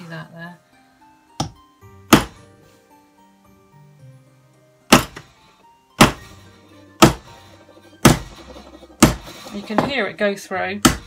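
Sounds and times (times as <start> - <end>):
hammer striking metal punch: 4.9 - 5.2, 6.0 - 6.3, 7.0 - 10.0.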